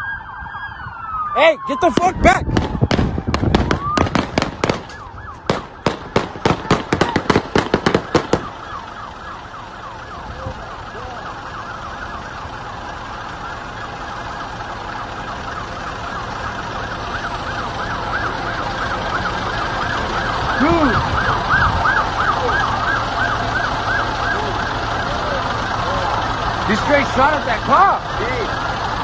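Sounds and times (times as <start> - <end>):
police siren yelping: 0.0 - 29.0
rapid gunshots: 1.9 - 8.7.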